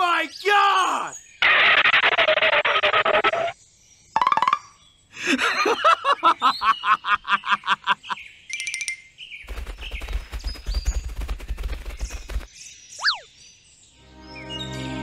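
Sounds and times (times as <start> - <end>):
person laughing: 5.2 - 8.2.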